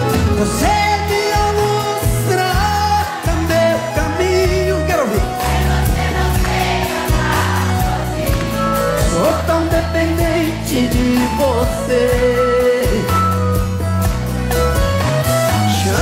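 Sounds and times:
man singing: 0.0s - 5.4s, 8.8s - 13.7s, 15.5s - 16.0s
acoustic guitar: 0.0s - 16.0s.

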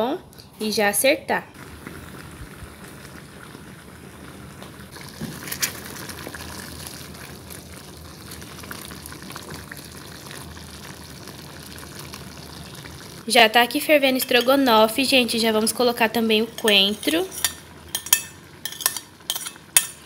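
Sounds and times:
sauce bubbling in a pan: 1.6s - 20.0s
wooden spoon stirring: 16.4s - 19.9s.

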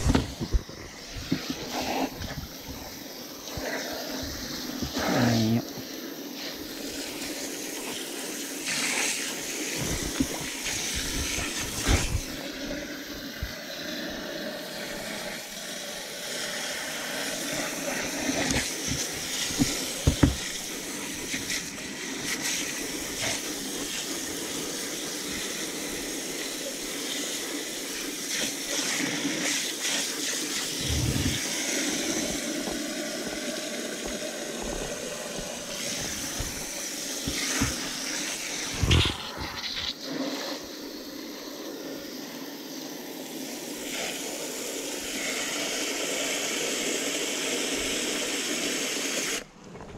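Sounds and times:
water splashing into plastic cooler: 17.9s - 22.7s, 34.9s - 39.4s
knocks against cooler: 19.5s - 20.5s.

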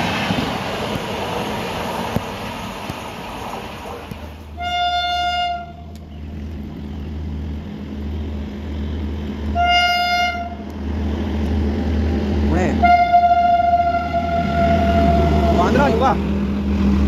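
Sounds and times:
train running rumble: 0.0s - 17.0s
train horn blasts: 4.6s - 5.9s, 9.6s - 10.6s, 12.8s - 15.8s.

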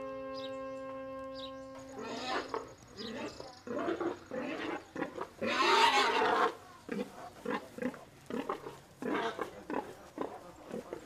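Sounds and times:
pig squealing loudly: 2.0s - 6.6s
pig grunting: 2.0s - 11.0s.

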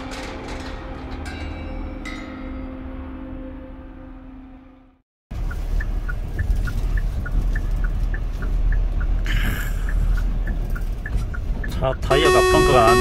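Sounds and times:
truck engine and road rumble: 5.3s - 13.0s.

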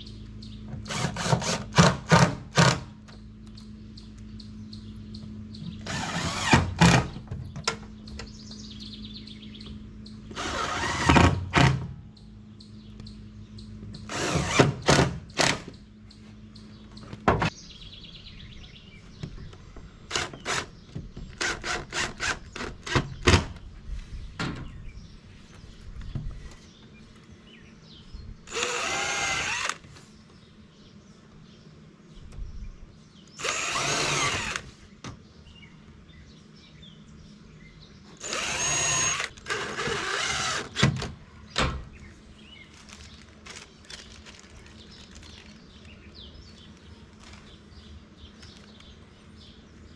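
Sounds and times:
cordless drill bursts: 0.9s - 2.8s, 5.8s - 7.0s, 10.3s - 11.4s, 14.1s - 15.6s, 28.5s - 29.9s, 33.4s - 34.8s, 38.2s - 40.9s.

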